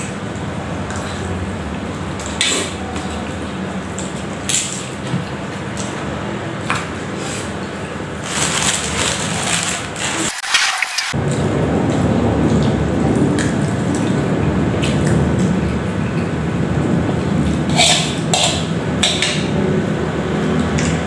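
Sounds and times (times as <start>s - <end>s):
noodles being slurped: 7.2s - 11.2s.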